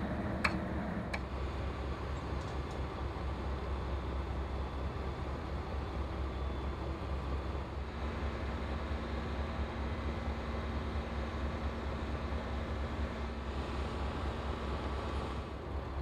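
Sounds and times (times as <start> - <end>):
diesel engine rumbling: 0.0 - 2.2.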